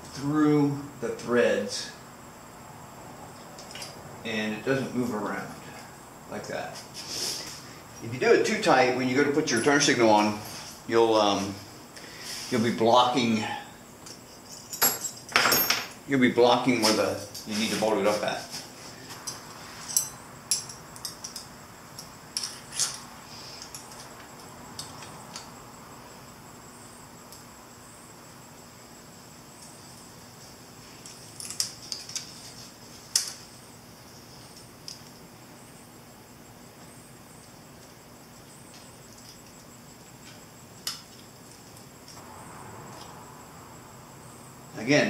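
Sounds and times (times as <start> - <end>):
small metal parts clicking: 31.0 - 32.5.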